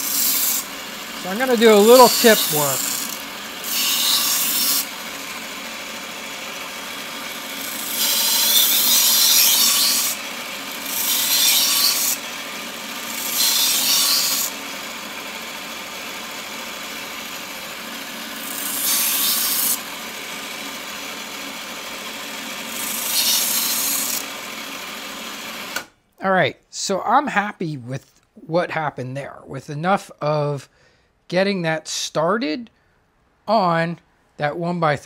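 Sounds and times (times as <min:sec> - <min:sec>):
belt sander running: 0:00.0 - 0:25.9.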